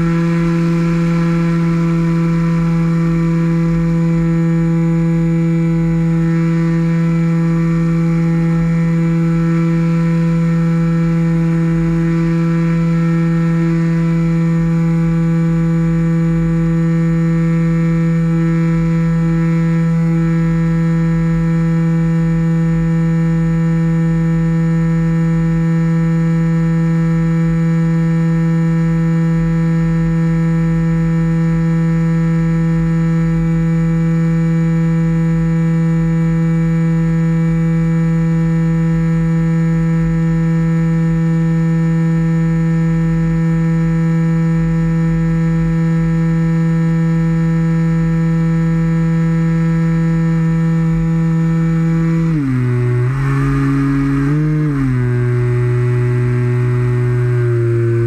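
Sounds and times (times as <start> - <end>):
model plane motor and propeller: 45.1 - 58.0.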